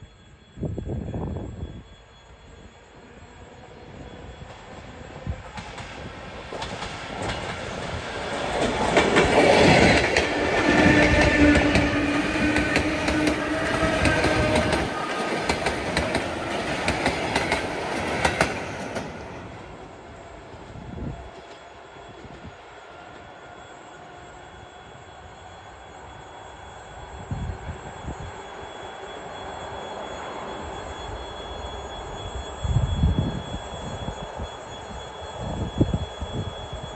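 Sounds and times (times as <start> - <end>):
steady train tone: 0.0 - 36.9
train wheels clattering over rail joints: 5.5 - 19.2.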